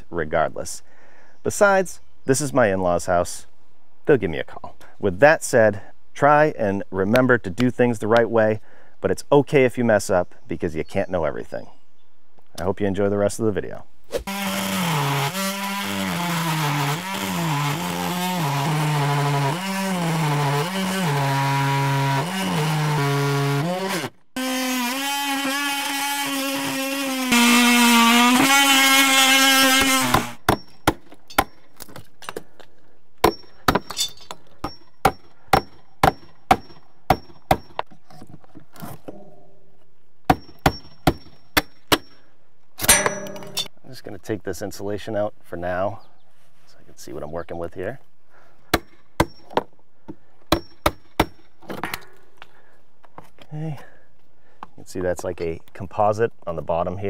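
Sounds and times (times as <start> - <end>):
oscillating multi-tool cutting wood: 14.1 - 31.6.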